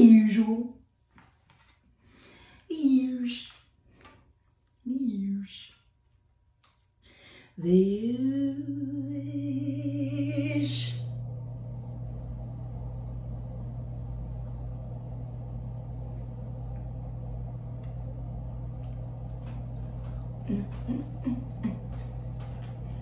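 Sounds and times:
steady low hum: 4.4s - 23.0s
woman singing: 7.6s - 11.2s.

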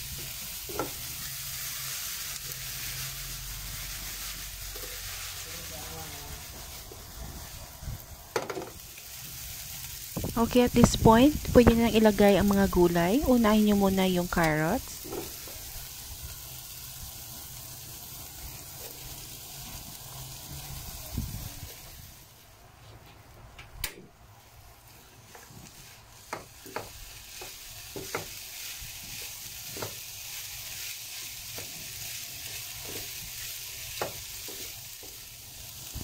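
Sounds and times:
food sizzling in a pan: 0.0s - 22.9s, 24.2s - 36.0s.

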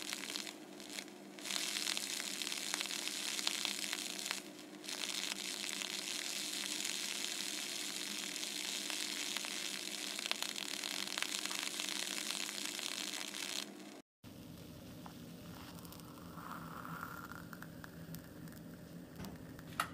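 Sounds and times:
laser burning hiss: 0.0s - 14.0s
faint crackles: 0.0s - 19.9s
low machine hum: 0.0s - 19.9s.

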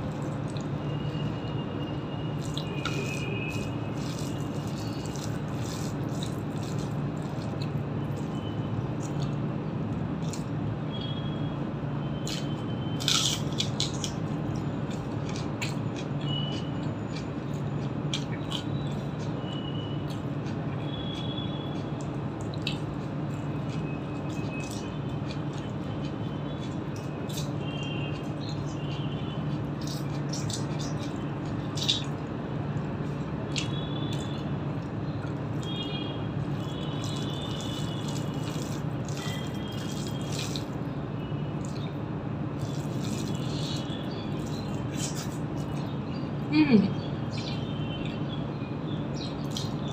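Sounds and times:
chewing: 2.3s - 10.5s, 12.2s - 35.8s, 36.4s - 40.9s, 41.6s - 46.1s, 49.2s - 49.9s
fingers squishing rice on plate: 36.4s - 40.7s.

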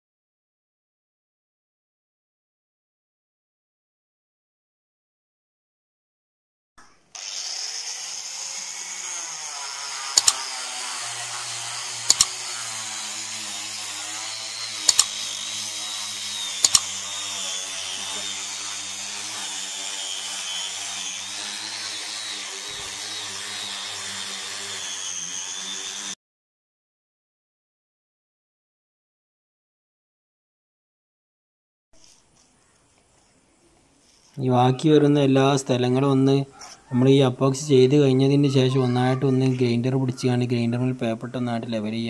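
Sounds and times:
angle grinder sanding wood: 7.2s - 26.2s
sharp double clicks: 10.2s - 10.4s, 12.1s - 12.4s, 14.9s - 15.2s, 16.6s - 16.9s.

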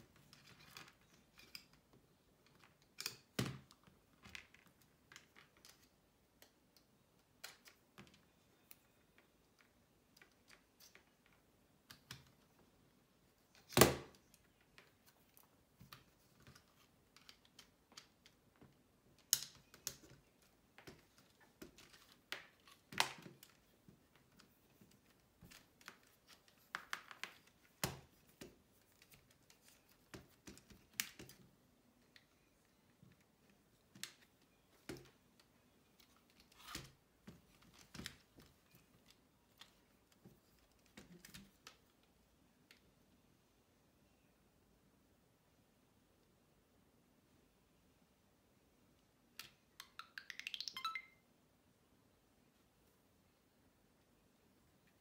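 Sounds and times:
plastic parts clicking and snapping: 0.2s - 12.5s, 13.5s - 42.0s.

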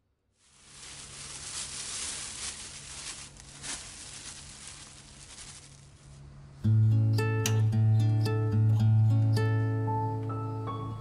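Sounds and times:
powder hissing into bowl: 0.4s - 6.0s
plastic bag crinkling: 0.4s - 6.3s.

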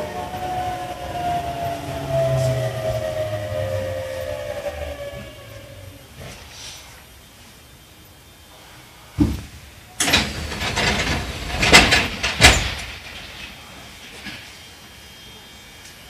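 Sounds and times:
hiss of air: 6.1s - 7.7s
doors knocking shut: 9.2s - 13.4s
train door thump: 9.2s - 13.6s.

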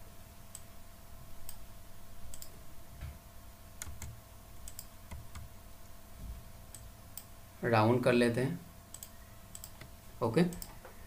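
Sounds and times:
faint steady hum: 0.0s - 11.0s
computer mouse clicking: 2.3s - 2.5s, 3.8s - 5.5s, 8.9s - 10.9s.

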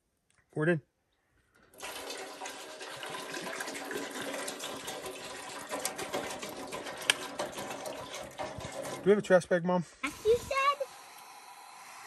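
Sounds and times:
water pouring into a metal pot: 1.6s - 9.4s.

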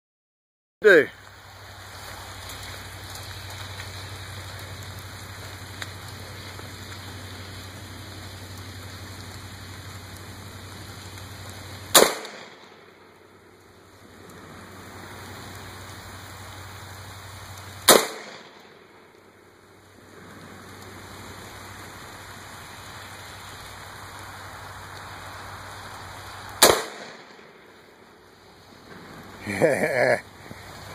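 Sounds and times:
background hiss: 0.8s - 30.9s
low hum: 1.1s - 30.9s
rifle shots: 11.9s - 12.9s, 17.8s - 18.9s, 26.6s - 27.6s.

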